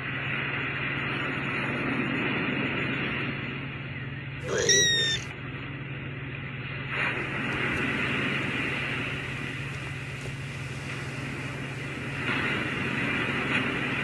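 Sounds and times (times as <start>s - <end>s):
low hum: 0.4s - 14.0s
kitten meowing: 4.4s - 5.3s.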